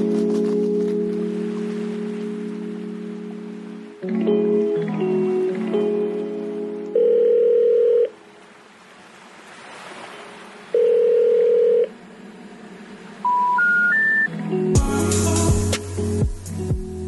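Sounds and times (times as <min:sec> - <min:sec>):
telephone ringback tone: 0:06.9 - 0:08.2, 0:10.8 - 0:11.9, 0:13.3 - 0:14.3.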